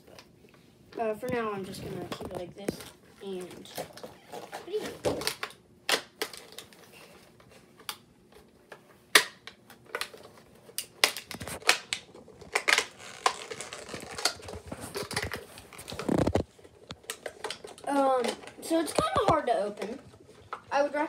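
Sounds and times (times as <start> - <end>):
plastic clicks taps and rustles: 1.2 - 6.8, 7.4 - 20.7.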